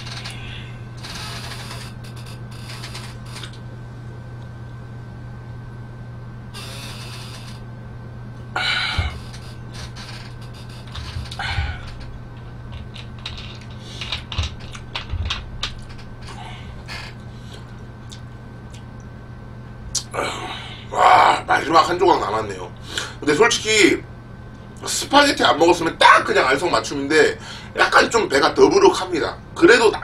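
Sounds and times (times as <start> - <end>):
low room hum: 0.0 - 30.0
mouth sounds: 19.9 - 21.5.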